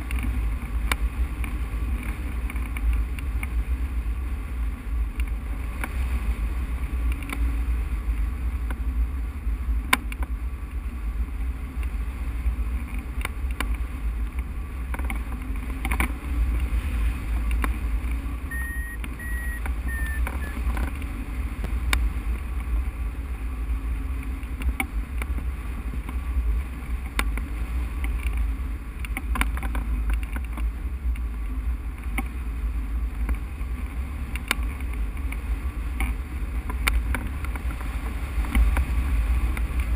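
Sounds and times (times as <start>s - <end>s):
brief high tone: 18.5s - 20.6s.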